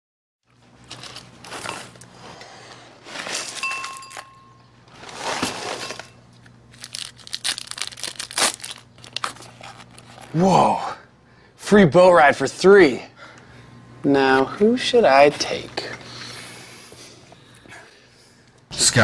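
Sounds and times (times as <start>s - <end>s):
newspaper pages rustling: 0.5s - 10.4s.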